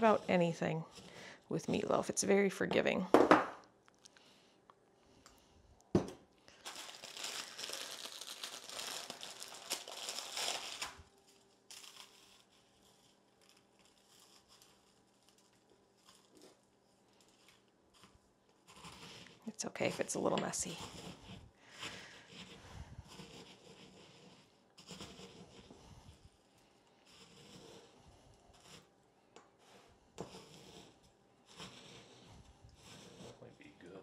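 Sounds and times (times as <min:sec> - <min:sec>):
crackers being crushed: 0:06.5 - 0:16.3.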